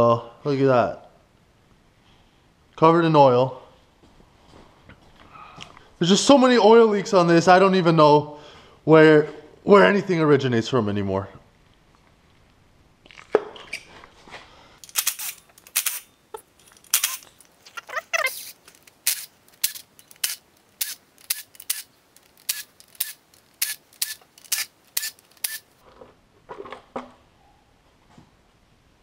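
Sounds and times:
cordless driver bursts: 14.8 - 16.0, 16.9 - 17.2, 18.3 - 25.7.

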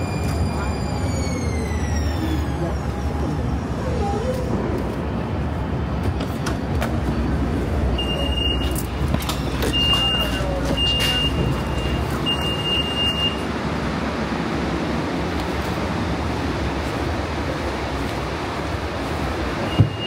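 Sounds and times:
low hum of tram and street: 0.0 - 20.0
high door warning beeps: 8.0 - 8.8, 9.6 - 13.4, 19.7 - 20.0.

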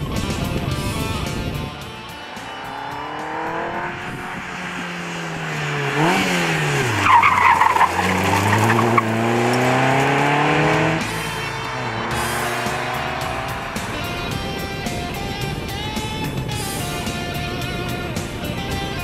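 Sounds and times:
sports car engine revving past: 2.0 - 17.2
tyres squealing: 5.7 - 10.2.

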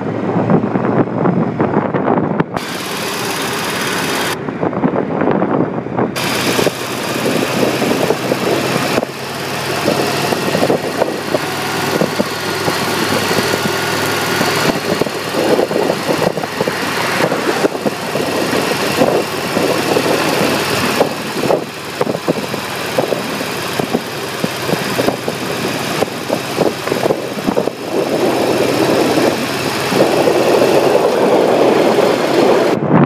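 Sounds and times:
motorcycle engine running: 0.0 - 32.8
wind buffeting microphone: 0.0 - 33.0.

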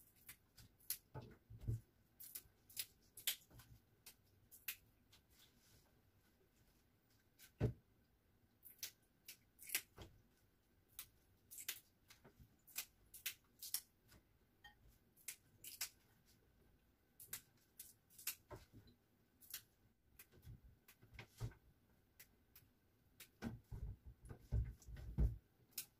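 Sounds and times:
leaves snapping and rustling: 2.2 - 4.8.

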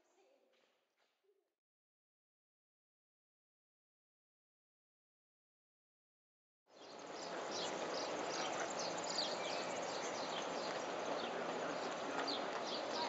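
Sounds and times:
steady background hum: 6.7 - 13.0.

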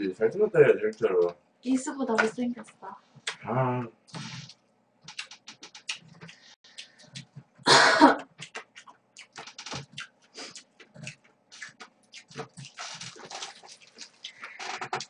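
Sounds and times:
wet chewing and lip smacks: 4.5 - 7.4, 8.3 - 15.0.

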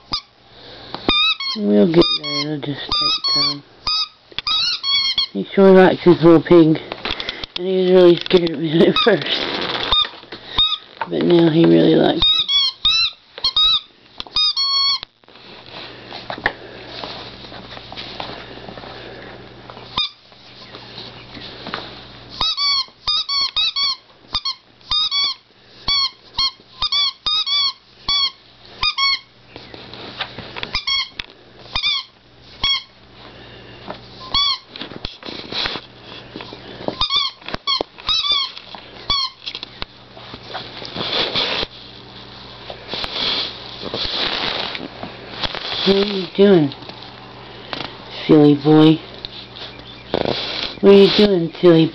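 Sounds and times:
squeaky toy squeaking: 0.0 - 0.3, 1.1 - 5.4, 9.8 - 10.9, 12.2 - 15.0, 20.0 - 20.2, 22.4 - 29.3, 30.7 - 32.9, 34.2 - 34.7, 37.0 - 39.4
soft rustling: 15.3 - 22.2, 40.1 - 47.3.

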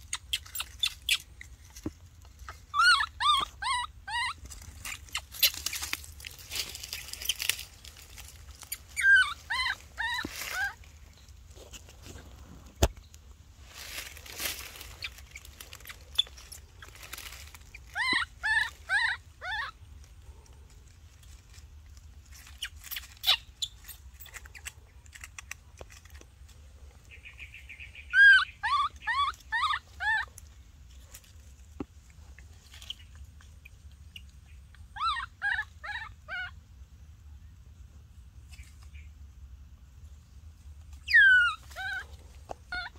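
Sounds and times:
baby monkey squealing: 0.0 - 1.3, 2.5 - 10.9, 14.7 - 19.8, 22.4 - 24.7, 27.2 - 30.4, 32.7 - 36.6, 41.0 - 42.9
dry leaves crackling: 0.1 - 28.0, 40.6 - 42.9.

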